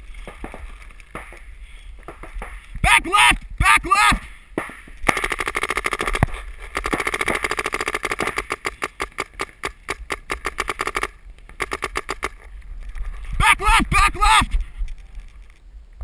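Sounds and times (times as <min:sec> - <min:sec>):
paintball marker rapid fire: 0:04.6 - 0:12.4.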